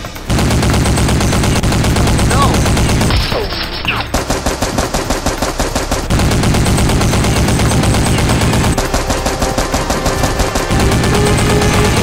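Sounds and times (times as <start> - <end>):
rapid automatic gunfire: 0.0 - 12.0.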